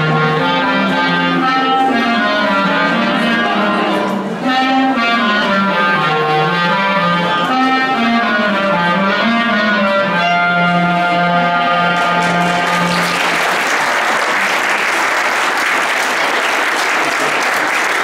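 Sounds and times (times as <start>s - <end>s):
clarinet ensemble chord: 0.0s - 15.4s
audience applause: 12.0s - 18.0s.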